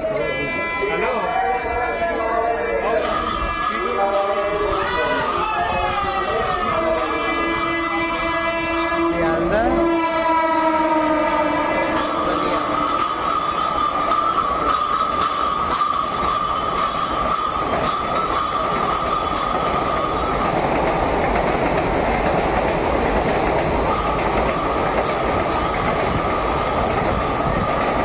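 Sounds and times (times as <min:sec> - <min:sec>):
train wheels rumbling and clattering: 0:03.0 - 0:28.0
high wheel squeal: 0:12.0 - 0:20.6.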